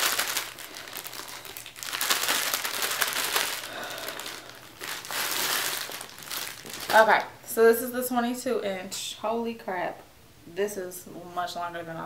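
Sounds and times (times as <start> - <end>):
plastic bag crinkling: 0.0 - 7.4.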